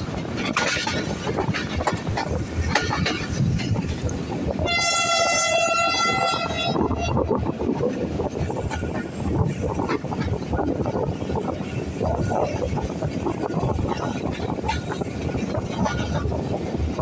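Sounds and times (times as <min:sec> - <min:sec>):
train coaches rumbling on track: 0:00.0 - 0:17.0
train horn blast: 0:04.6 - 0:07.3.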